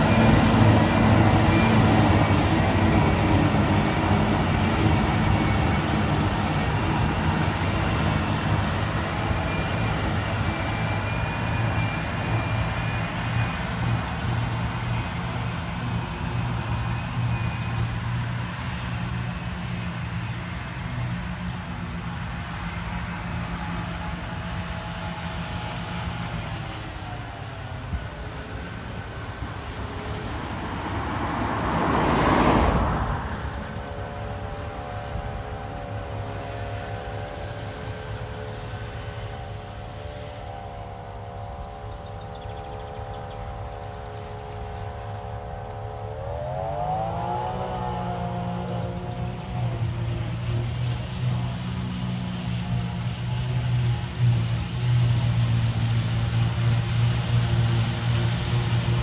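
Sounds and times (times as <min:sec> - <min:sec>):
high whine of cutterhead: 0:00.0 - 0:22.0, 0:26.0 - 0:35.6
engine drone: 0:00.0 - 0:59.0.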